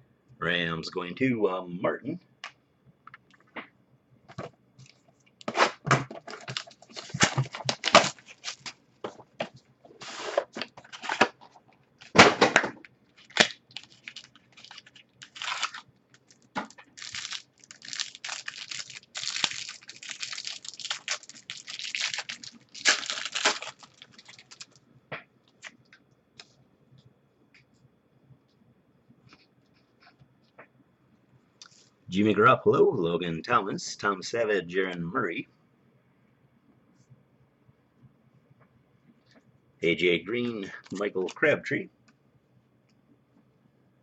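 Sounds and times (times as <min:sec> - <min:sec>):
cardboard and wrappers rustling: 0:04.3 - 0:24.8.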